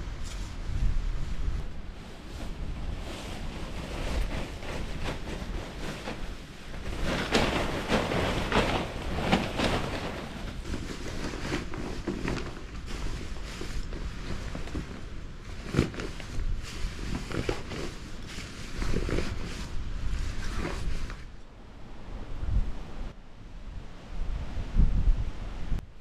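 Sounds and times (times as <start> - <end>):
wind on the microphone: 0.0 - 26.0
tent fabric rustling: 0.3 - 21.4.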